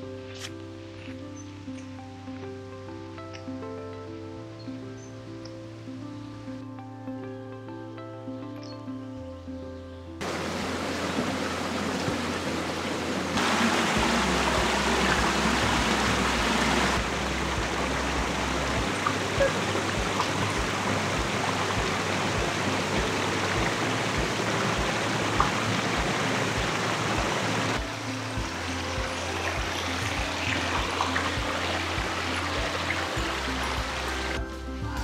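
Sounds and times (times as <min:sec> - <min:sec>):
brook water rushing: 0:10.2 - 0:34.9.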